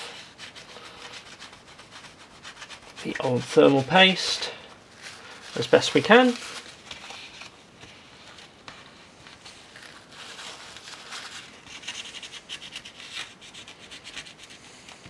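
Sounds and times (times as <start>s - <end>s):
cloth rubbing on metal: 0.0s - 15.0s.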